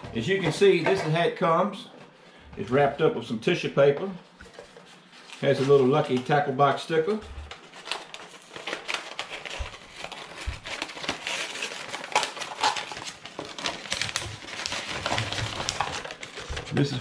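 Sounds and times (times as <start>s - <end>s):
tissue paper rustling and crinkling: 4.2s - 17.0s.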